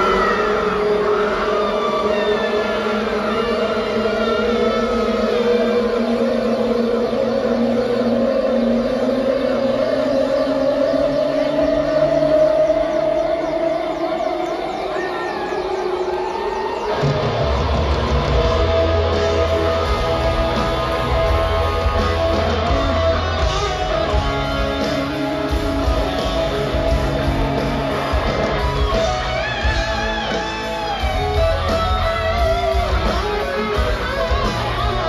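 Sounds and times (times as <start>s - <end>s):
live rock band: 0.0s - 12.8s, 16.3s - 35.0s
drums: 0.0s - 35.0s
electric guitars: 0.0s - 35.0s
bass guitar: 17.0s - 35.0s.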